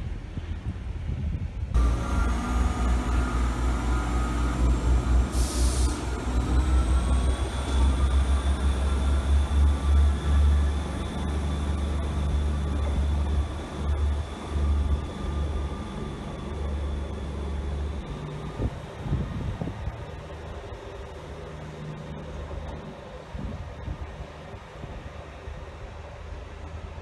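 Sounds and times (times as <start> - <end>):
diesel train engine rumbling: 0.0 - 27.0
air hiss: 5.2 - 6.1.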